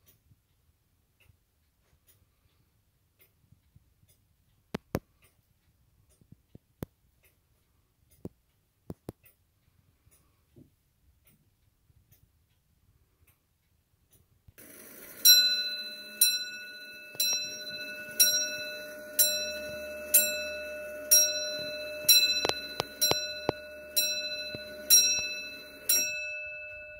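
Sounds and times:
clock bell striking: 0:14.6 - 0:26.9
clock striking mechanism whirring: 0:14.6 - 0:26.9.

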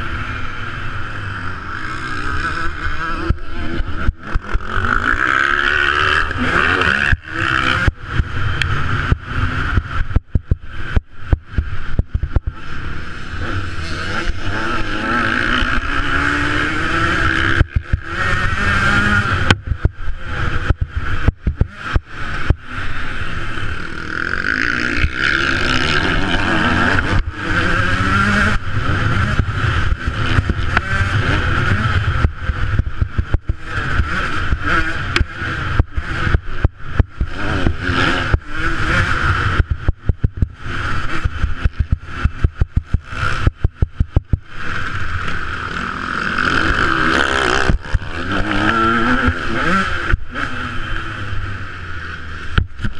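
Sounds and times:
motocross bike engine revving: 0:00.0 - 0:52.9
wind noise: 0:15.5 - 0:23.0.

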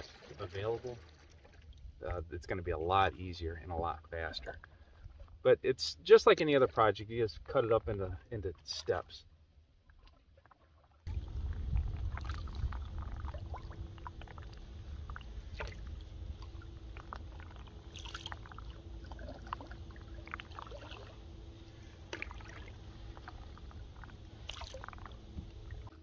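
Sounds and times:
water dripping off paddle: 0:09.9 - 0:25.9
wind rumble on microphone: 0:11.1 - 0:20.8.

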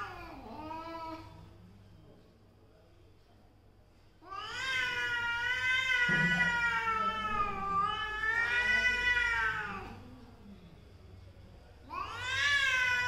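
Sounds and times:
cat yowling: 0:04.3 - 0:10.0, 0:11.9 - 0:13.0.

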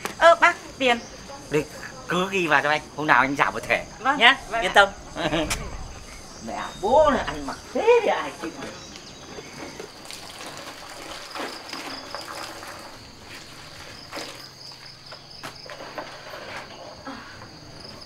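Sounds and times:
water splashing: 0:02.4 - 0:15.9.

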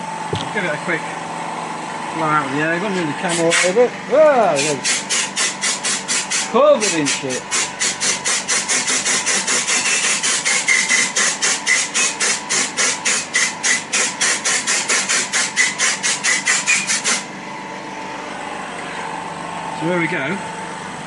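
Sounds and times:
swarf being cleared by hand: 0:04.5 - 0:17.2
thin machine whine: 0:15.6 - 0:21.0.

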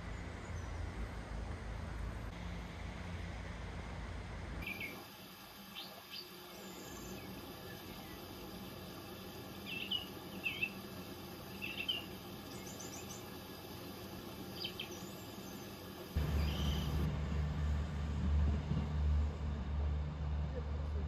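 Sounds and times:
small birds chirping: 0:04.6 - 0:17.1.

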